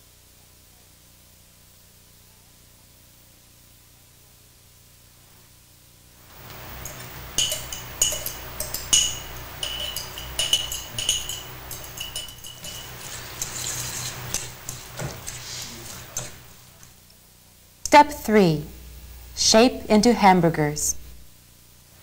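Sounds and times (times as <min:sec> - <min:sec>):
fork clinking against bowl: 0:06.4 - 0:16.6
fork stirring meat in bowl: 0:06.4 - 0:16.9.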